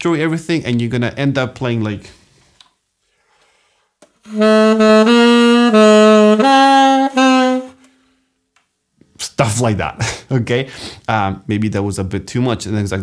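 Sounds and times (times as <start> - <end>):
alto saxophone tongued notes: 4.2 - 8.0.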